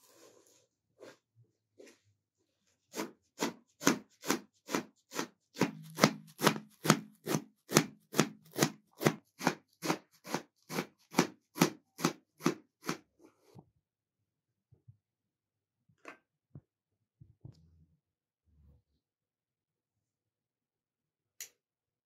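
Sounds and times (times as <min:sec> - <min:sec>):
knife chopping herbs on metal: 0:02.9 - 0:13.0.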